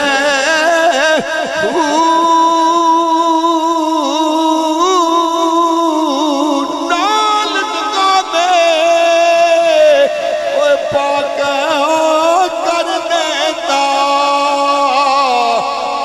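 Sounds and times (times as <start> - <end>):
man singing ornamented melody: 0.0 - 16.0.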